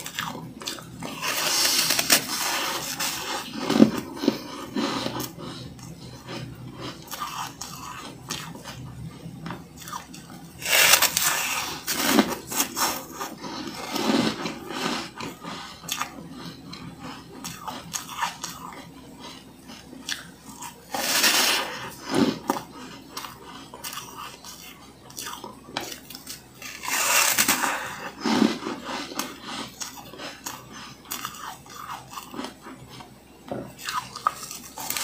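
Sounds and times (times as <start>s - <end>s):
chewing crunches: 0.0s - 35.0s
crunching bites of frost: 10.6s - 13.0s.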